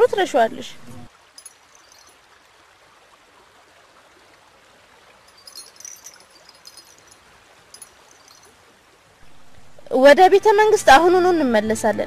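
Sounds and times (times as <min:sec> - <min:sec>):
river water trickling: 0:00.0 - 0:12.0
small crisp ticks: 0:05.3 - 0:08.6.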